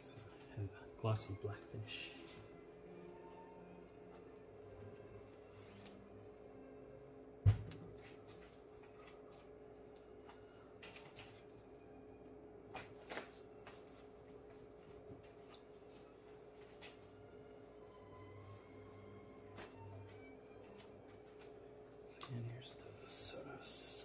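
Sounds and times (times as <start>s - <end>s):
faint steady hum: 0.0s - 24.0s
heavy low thud: 7.4s - 7.8s.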